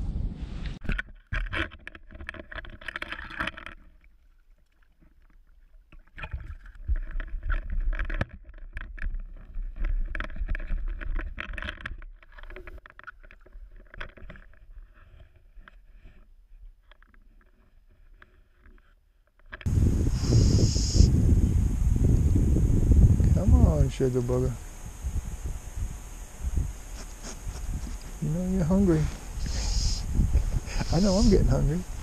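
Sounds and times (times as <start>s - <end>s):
water splashing and sloshing: 0.8s - 14.5s.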